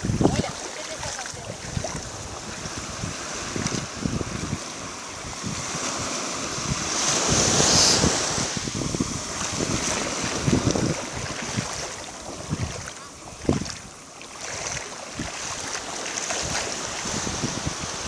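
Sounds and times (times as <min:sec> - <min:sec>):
small waves washing on shore: 0:00.0 - 0:18.0
wind buffeting microphone: 0:00.0 - 0:18.0.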